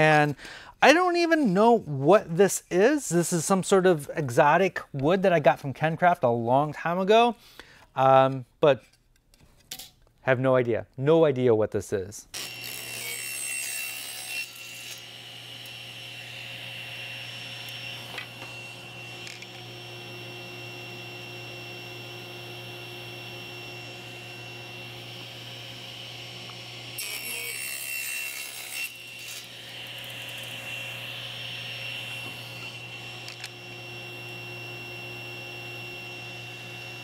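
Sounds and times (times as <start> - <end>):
table saw cutting wood: 12.3 - 37.0.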